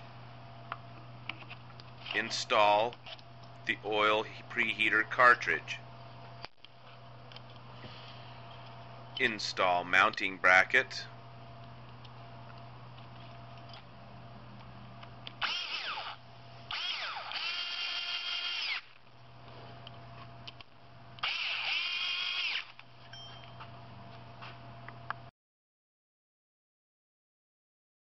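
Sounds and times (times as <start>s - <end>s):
cordless screwdriver motor whine: 15.4s - 19.0s, 21.2s - 22.8s.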